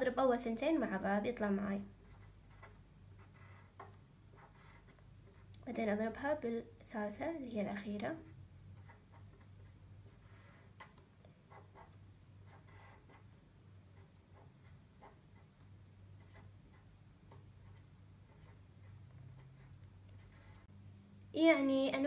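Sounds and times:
low steady hum: 0.0s - 22.0s
pen scratching on paper: 2.0s - 5.5s, 8.2s - 20.7s.

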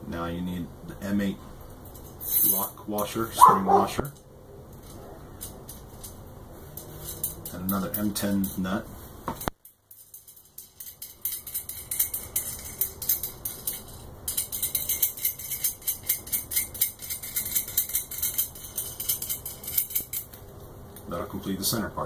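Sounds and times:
nut rattling on threaded rod: 3.4s - 20.4s.

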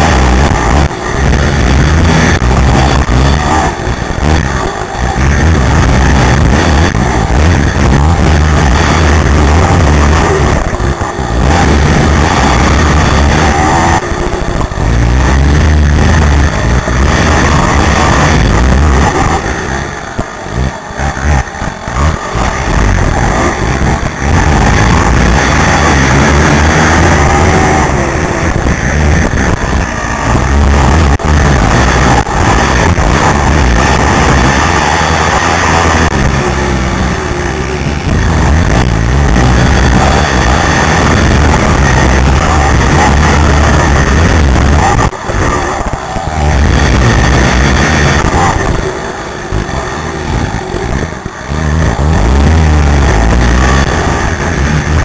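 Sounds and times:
quad engine revving: 0.0s - 55.0s.

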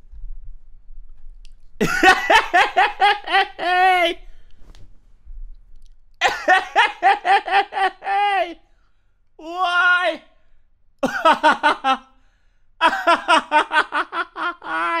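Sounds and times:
man laughing heartily: 1.8s - 4.3s, 6.2s - 8.6s, 11.0s - 12.1s, 12.8s - 15.0s.

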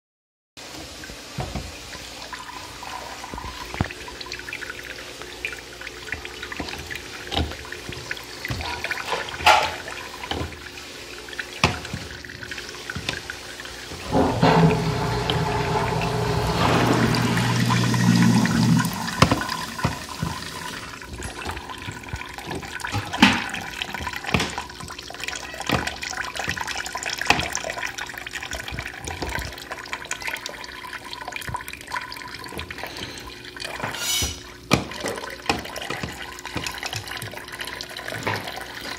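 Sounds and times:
juice drips and splashes: 0.7s - 14.2s, 15.8s - 38.9s
juice trickling: 0.8s - 38.9s
low hum: 14.1s - 21.0s.

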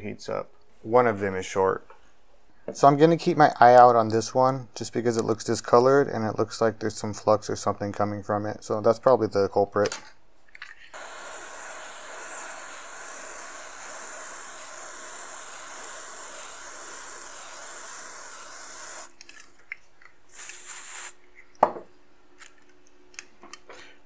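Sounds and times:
aerosol spray hissing: 11.0s - 19.2s, 20.3s - 21.2s.

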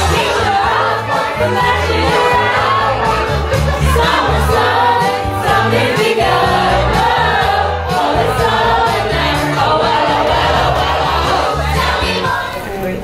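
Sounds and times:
repeating bass line: 0.0s - 12.4s.

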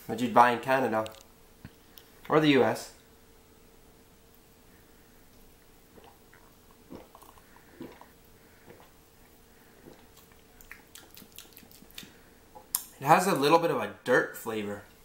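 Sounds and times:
man gulping and swallowing: 5.9s - 12.8s
lip smacks and tongue clicks: 9.8s - 12.9s.

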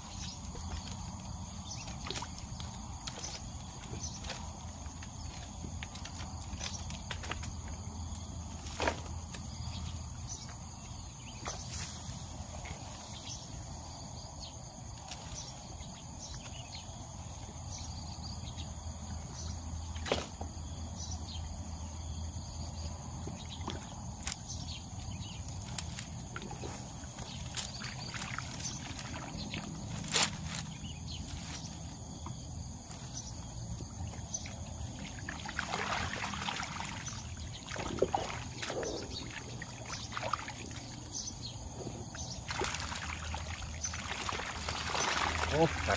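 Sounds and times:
high insect drone: 0.0s - 45.9s
water splash: 35.0s - 40.9s, 42.4s - 45.9s.

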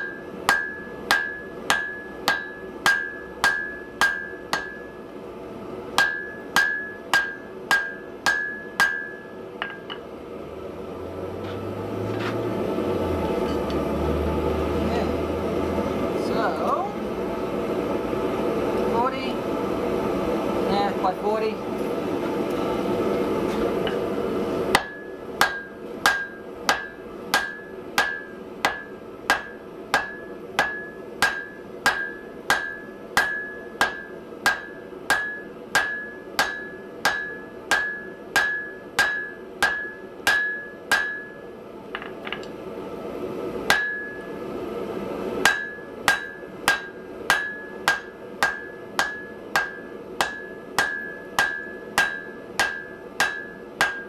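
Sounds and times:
hammer ringing on anvil: 0.0s - 5.0s, 6.0s - 10.0s, 24.8s - 42.1s, 43.7s - 44.3s, 45.4s - 54.0s.

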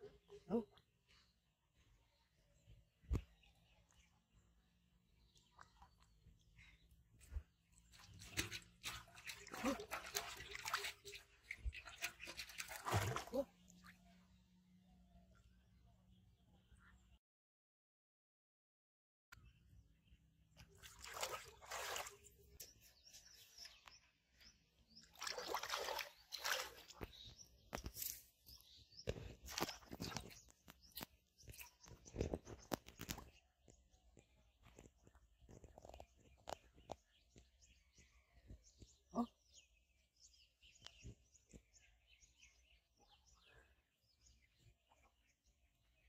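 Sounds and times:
water sloshing around wading legs: 7.4s - 13.9s, 20.6s - 22.6s, 25.0s - 28.1s
birds chirping: 19.4s - 46.0s.

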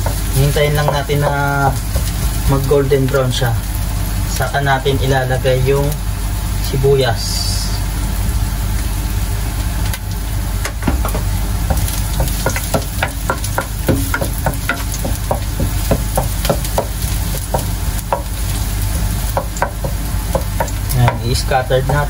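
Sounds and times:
garlic sizzling in hot oil: 0.0s - 22.0s.

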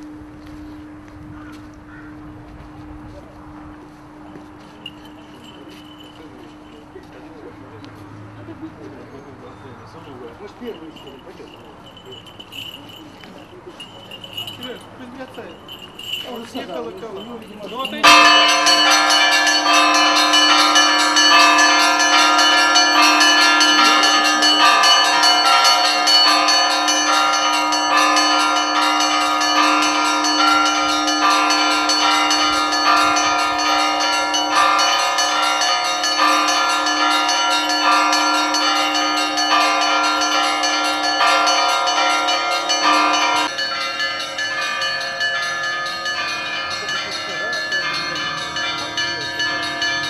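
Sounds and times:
small church bells ringing rapidly: 4.1s - 7.9s, 8.5s - 50.0s
large bell deep tone: 13.8s - 50.0s.

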